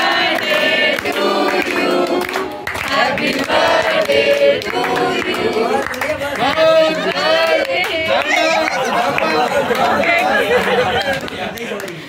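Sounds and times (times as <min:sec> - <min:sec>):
voices singing in chorus: 0:00.0 - 0:11.0.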